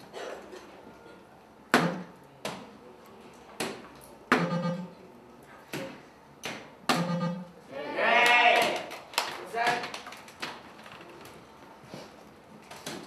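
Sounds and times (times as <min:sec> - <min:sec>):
darts hitting dartboard: 0:01.8 - 0:02.7, 0:05.7 - 0:07.4
short electronic tones: 0:04.4 - 0:05.0, 0:06.9 - 0:07.6.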